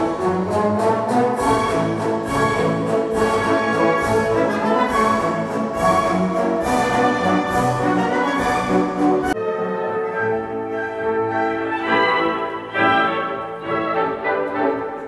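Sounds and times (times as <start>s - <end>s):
orchestral music over loudspeakers: 0.0s - 15.0s.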